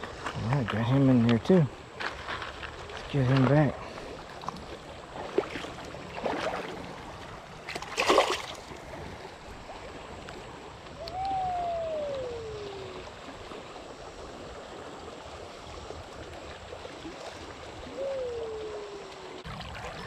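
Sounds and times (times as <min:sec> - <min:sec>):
fish splashing into water: 0:07.7 - 0:08.8
long tone falling in pitch: 0:11.0 - 0:13.1.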